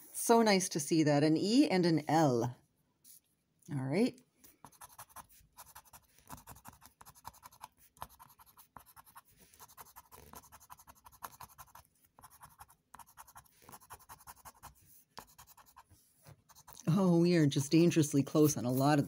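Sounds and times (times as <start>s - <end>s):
scraping a scratch ticket: 4.6s - 19.0s.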